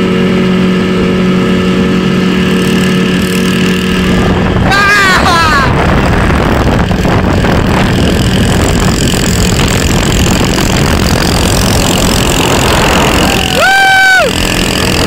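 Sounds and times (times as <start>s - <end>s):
jet ski engine drone: 0.0s - 15.0s
water rushing: 9.5s - 15.0s.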